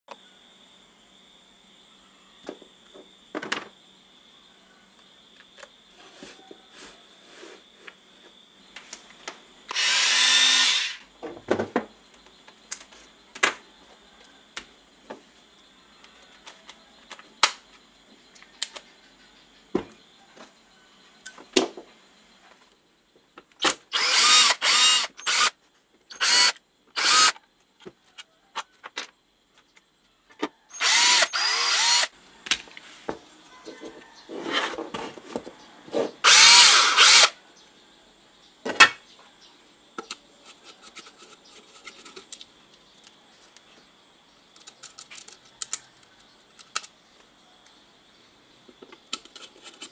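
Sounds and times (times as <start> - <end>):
electric screwdriver whirring: 9.7 - 11.0, 23.9 - 25.5, 26.1 - 27.4, 30.7 - 32.1, 36.2 - 37.3.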